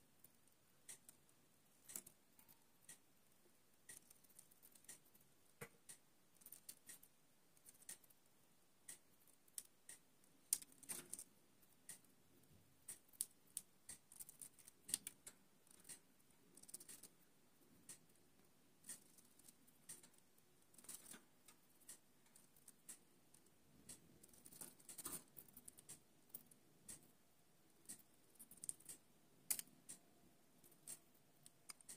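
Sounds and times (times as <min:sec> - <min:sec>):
bird bill clicking and snipping: 0:10.5 - 0:11.3, 0:12.9 - 0:16.0, 0:16.6 - 0:17.2, 0:18.8 - 0:23.5, 0:24.2 - 0:27.0, 0:27.9 - 0:29.7.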